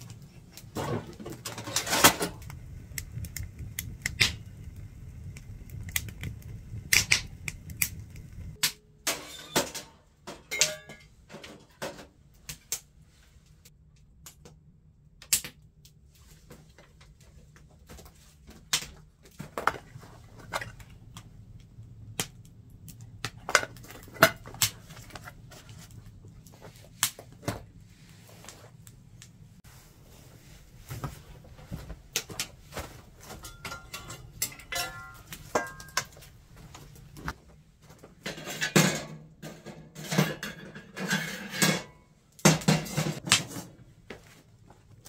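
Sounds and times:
firewood crackling in stove: 0.0 - 45.0
low rumble: 2.4 - 8.6.

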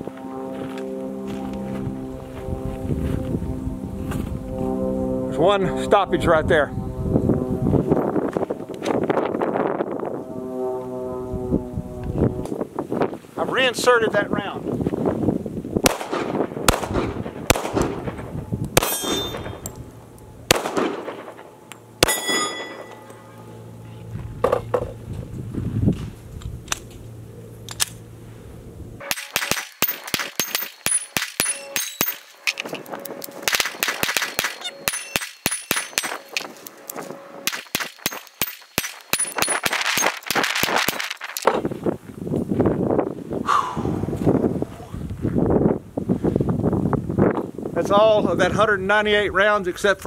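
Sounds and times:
pistol shots: 15.8 - 18.2, 18.8 - 19.7, 20.5 - 21.4, 22.0 - 22.9, 29.0 - 32.3, 33.4 - 36.5, 37.4 - 41.1
steel target ringing: 18.8 - 19.8, 20.7 - 23.6, 29.0 - 32.7, 33.6 - 36.6, 37.4 - 40.2.

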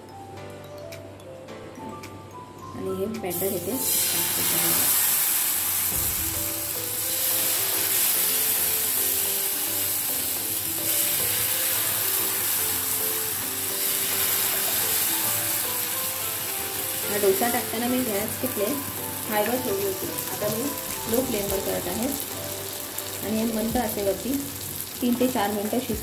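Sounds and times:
soft background music: 0.0 - 26.0
batter sizzling on hot pan: 3.3 - 26.0.

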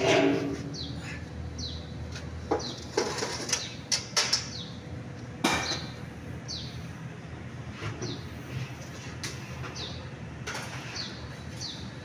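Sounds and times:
bird chirping: 0.6 - 1.9, 6.5 - 6.8.

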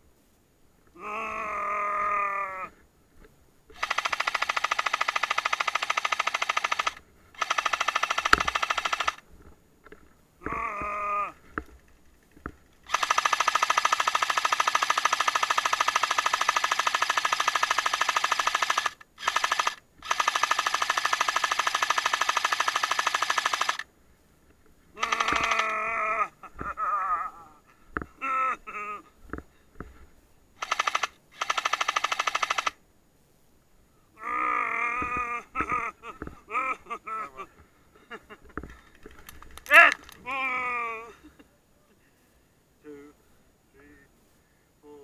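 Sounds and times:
groaning voice: 1.0 - 2.8, 10.4 - 11.4, 25.0 - 29.1, 34.2 - 37.5, 39.7 - 41.2
airsoft machine gun bursts: 3.7 - 9.2, 12.8 - 23.9, 25.0 - 25.8, 30.6 - 32.8.

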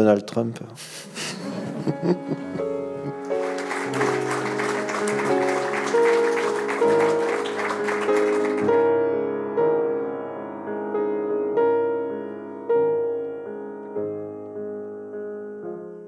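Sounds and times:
slow solo piano: 1.6 - 16.0
audience applause: 1.9 - 8.8.

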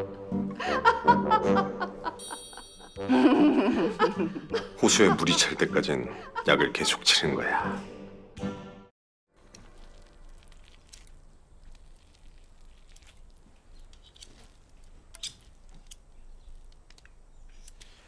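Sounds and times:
spoon working dough in a bowl: 9.4 - 17.0.

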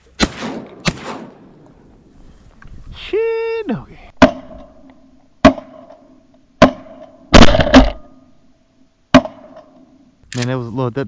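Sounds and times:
shotgun blasts with echo: 0.2 - 1.6, 5.4 - 6.0, 6.6 - 8.0.

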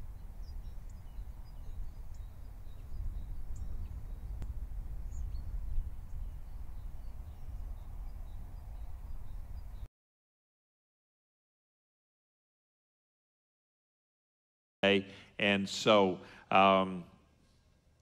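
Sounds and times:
small birds chirping: 0.0 - 9.9
steady low rumble: 0.0 - 9.9.

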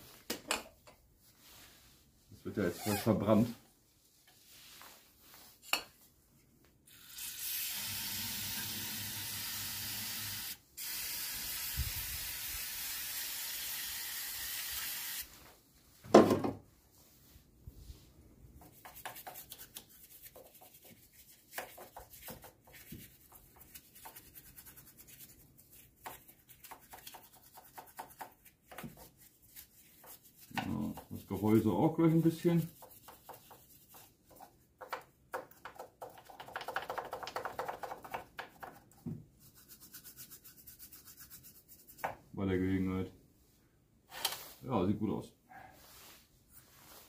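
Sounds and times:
brush rubbing and clicking: 18.6 - 42.1.

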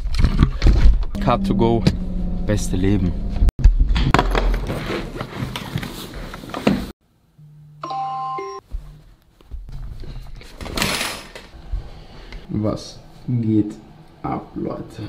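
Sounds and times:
phone alarm chime melody: 7.8 - 8.6.

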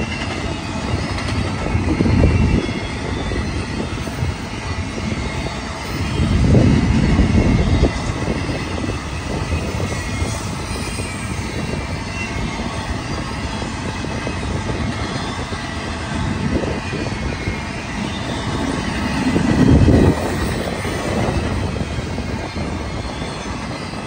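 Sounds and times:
high wheel squeal: 0.0 - 24.0
train wheels rumbling on rails: 0.0 - 24.0.

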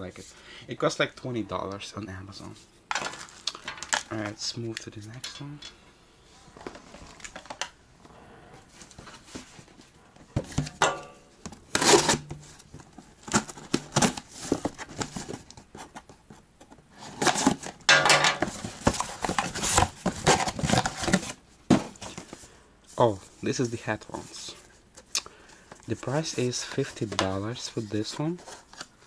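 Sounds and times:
knife slitting box tape: 11.7 - 12.2.

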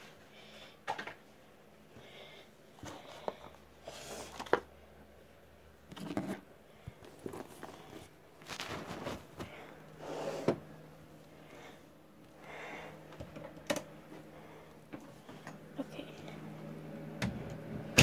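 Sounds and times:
objects rustling and knocking: 2.8 - 4.7, 5.9 - 10.6.

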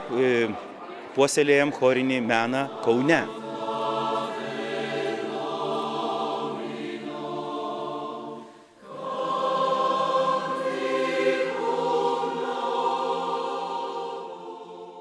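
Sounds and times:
mixed choir singing: 0.0 - 15.0.

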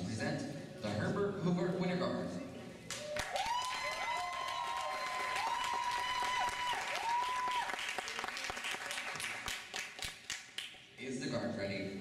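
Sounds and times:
audience applauding and cheering: 2.9 - 10.7.

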